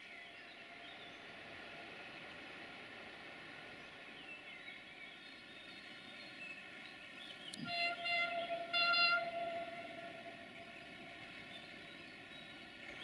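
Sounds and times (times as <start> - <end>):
train horn blasts: 7.5 - 11.8.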